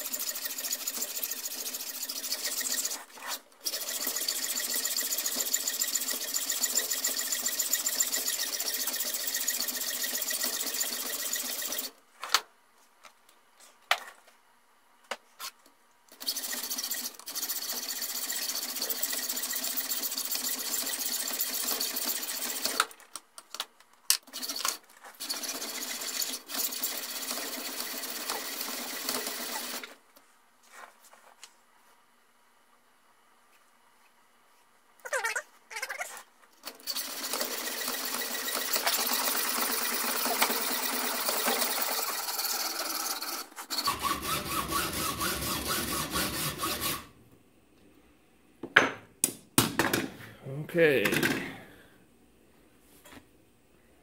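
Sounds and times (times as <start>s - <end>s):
hacksaw cutting steel: 0.0s - 11.9s, 37.2s - 47.1s.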